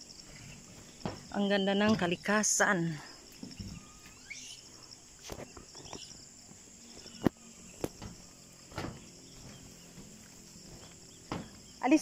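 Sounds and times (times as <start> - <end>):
footsteps on steel deck plates: 0.0 - 4.4, 5.1 - 12.0
insect chirping: 0.0 - 12.0.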